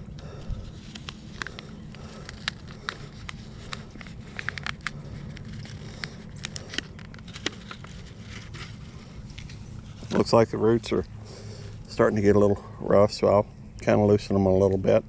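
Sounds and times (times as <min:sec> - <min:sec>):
steady low rumble: 0:00.0 - 0:15.0
plastic cell pack crackling: 0:00.4 - 0:10.2.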